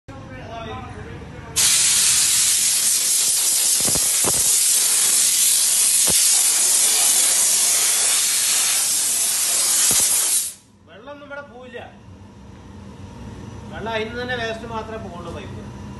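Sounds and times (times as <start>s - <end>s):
steam jet hissing: 1.6s - 10.6s.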